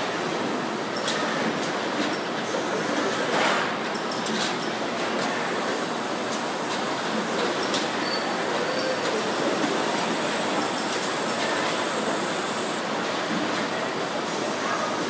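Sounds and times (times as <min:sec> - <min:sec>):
machine noise of conveyors: 0:00.0 - 0:15.0
thin high hiss: 0:05.3 - 0:12.8.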